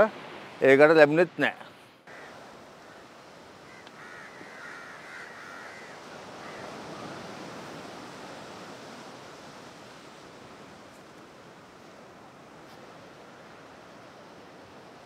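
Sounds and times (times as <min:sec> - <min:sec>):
small waves breaking on shore: 0:00.0 - 0:15.0.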